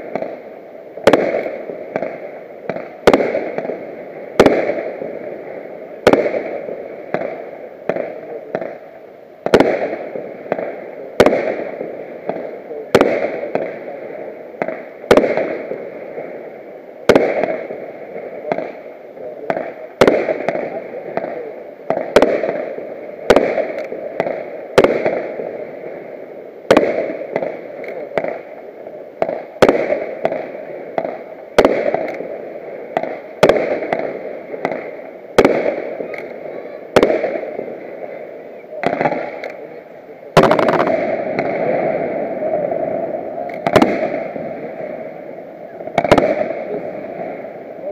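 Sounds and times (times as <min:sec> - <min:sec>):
fireworks bursting with echo: 0:00.0 - 0:47.9.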